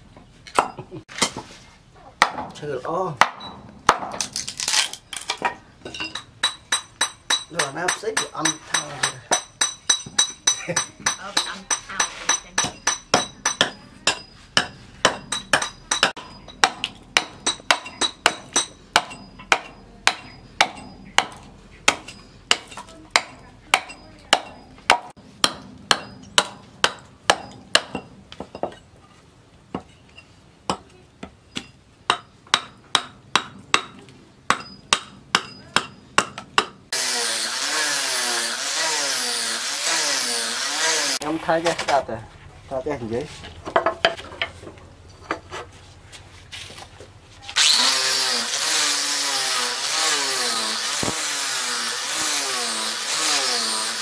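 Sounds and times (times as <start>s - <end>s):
hatchet chopping wood: 2.2s - 2.6s, 3.2s - 28.1s, 31.5s - 41.2s, 47.6s - 54.0s
angle grinder sanding wood: 36.9s - 41.8s, 47.4s - 54.0s.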